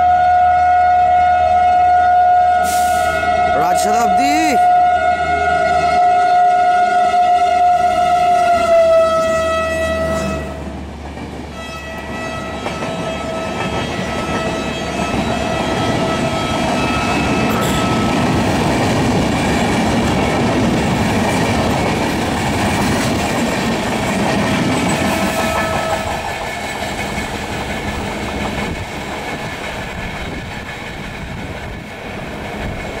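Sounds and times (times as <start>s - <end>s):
train horn blaring: 0.0s - 10.8s, 11.5s - 18.6s, 24.8s - 26.3s
train wheels on rails: 7.8s - 33.0s.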